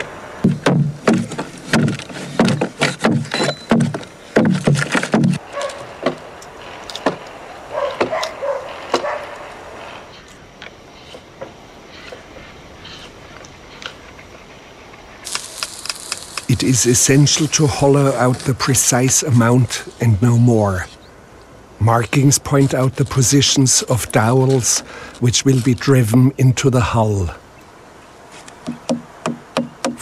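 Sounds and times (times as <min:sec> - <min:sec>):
hand tool chopping wood: 0:00.4 - 0:06.2, 0:28.6 - 0:30.0
calf calling: 0:05.3 - 0:11.2.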